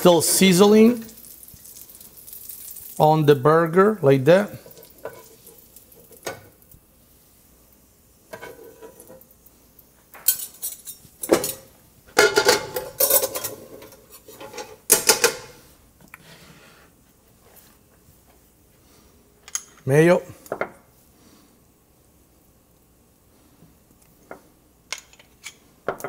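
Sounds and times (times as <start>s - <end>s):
metal spoon and pan clattering: 4.6s - 6.5s, 10.2s - 15.6s.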